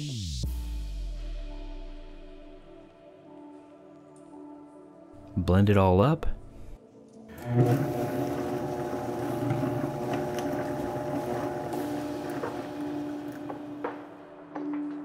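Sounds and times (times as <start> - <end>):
blender motor running: 7.3 - 14.0.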